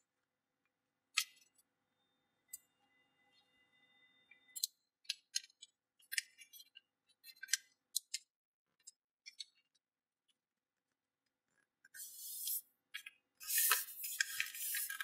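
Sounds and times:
paper crackling and rustling: 13.4 - 15.0.

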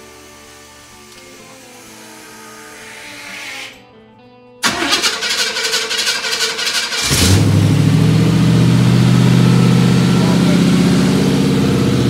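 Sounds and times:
car starter cranking: 4.6 - 7.8
car engine idling: 4.6 - 12.0.

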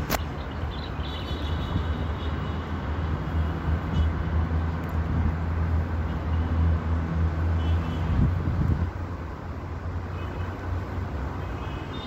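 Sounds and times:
city traffic rumble: 0.0 - 12.0.

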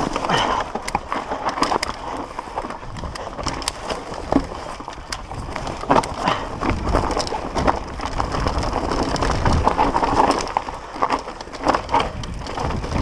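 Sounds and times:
bike clattering over bumps: 0.0 - 13.0
tyres crunching over stones: 0.0 - 13.0
wind rumble on microphone: 0.0 - 13.0.

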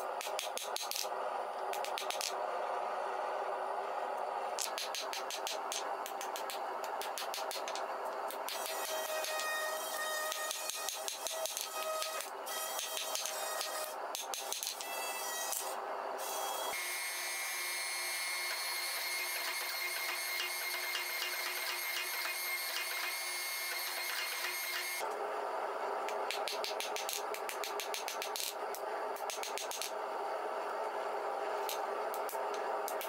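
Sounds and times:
hammer striking hot steel: 4.6 - 9.5, 10.2 - 14.9
hydraulic press humming and whining: 14.8 - 26.2.

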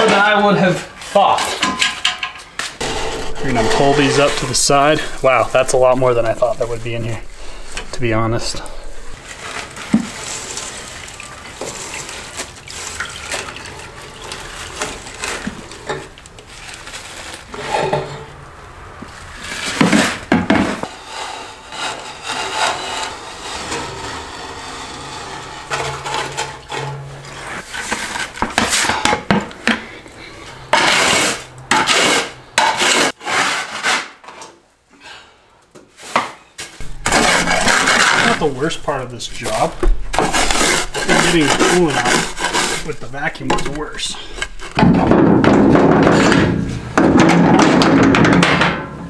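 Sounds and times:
plastic scoop scraping metal chips: 36.8 - 45.0.

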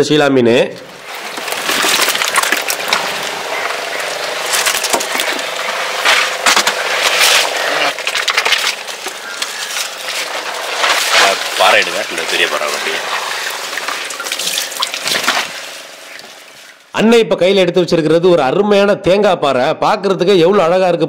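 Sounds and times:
fish slapping on boat deck: 1.0 - 16.8.

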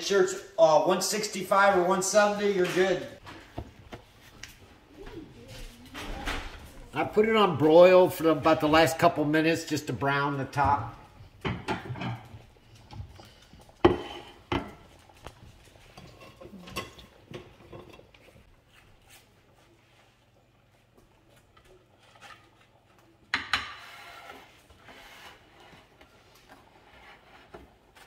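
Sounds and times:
dish clatter: 11.4 - 12.5.

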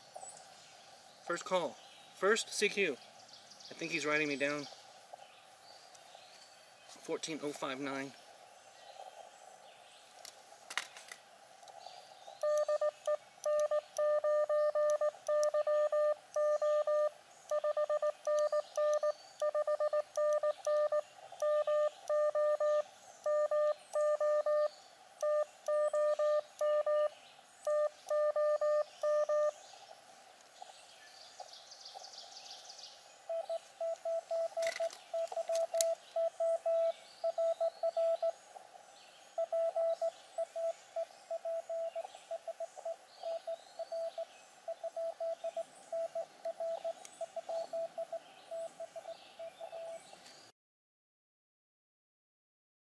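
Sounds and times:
birds chirping: 0.0 - 50.5
morse code tones: 12.4 - 29.6, 33.3 - 38.3, 39.4 - 49.9.

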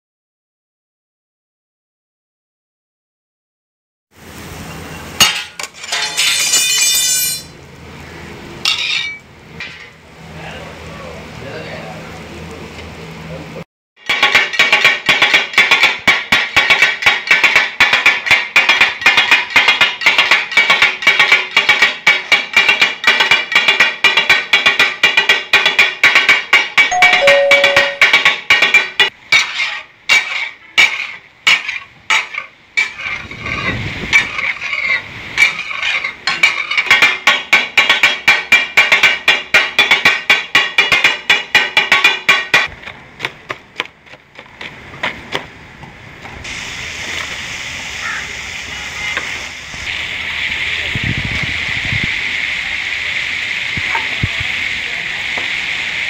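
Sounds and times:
sizzling hiss: 4.2 - 5.2, 46.4 - 56.0
spatulas striking metal griddle: 5.2 - 7.6, 8.6 - 9.9, 14.0 - 42.7.

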